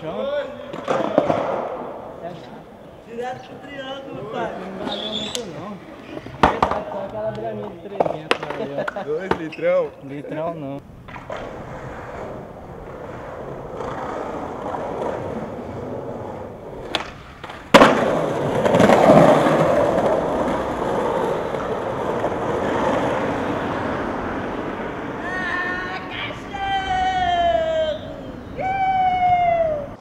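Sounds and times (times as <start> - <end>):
skateboard wheels rolling on pavement: 0.0 - 30.0
skateboard hitting the ground: 0.7 - 2.0, 6.4 - 7.0, 8.0 - 9.5, 11.0 - 23.7
falling voice call: 25.2 - 30.0.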